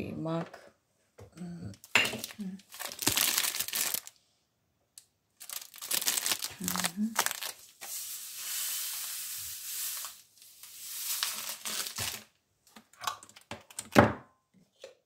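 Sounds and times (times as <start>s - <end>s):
seeds pouring into grinder bowl: 5.9s - 12.3s.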